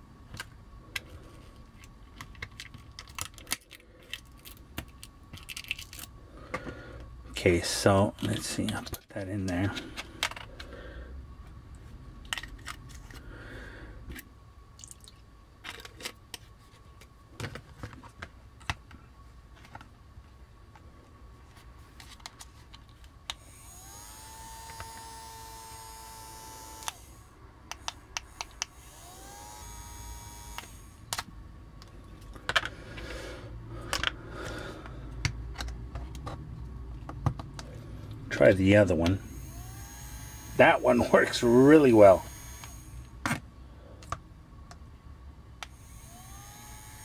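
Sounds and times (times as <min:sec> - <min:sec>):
plastic parts clicking: 0:01.8 - 0:06.7, 0:08.2 - 0:10.7, 0:30.5 - 0:32.7, 0:33.9 - 0:34.2
toy fan motor whirring: 0:23.3 - 0:31.2, 0:38.9 - 0:43.2, 0:45.6 - 0:47.0.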